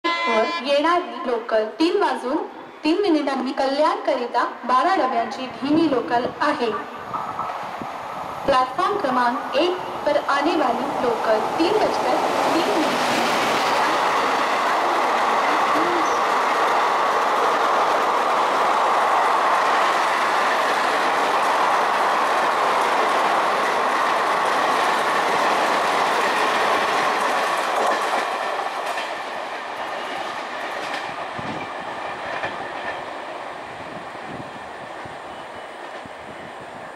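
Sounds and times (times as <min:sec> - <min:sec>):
train passing at speed: 0:04.4 - 0:36.9.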